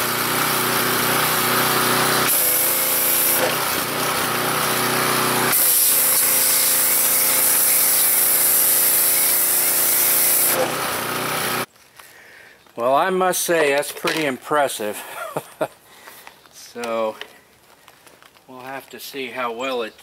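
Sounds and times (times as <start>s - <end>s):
pressure washer motor hum: 0.0s - 11.7s.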